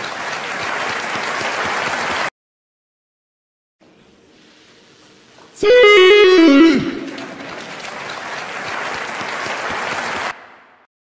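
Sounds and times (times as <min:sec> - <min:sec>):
audience applause: 0:00.0 - 0:02.3, 0:06.2 - 0:10.8
autotuned shout: 0:05.6 - 0:07.5.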